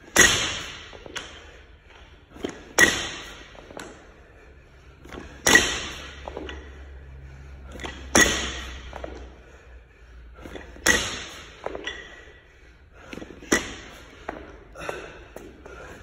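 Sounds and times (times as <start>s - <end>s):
barbell thudding on rubber floor: 0.1s - 0.9s.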